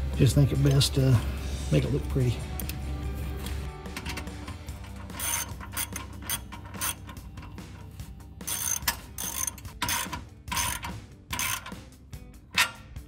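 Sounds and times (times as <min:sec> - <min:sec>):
ratchet wrench clicking: 0:04.0 - 0:12.0.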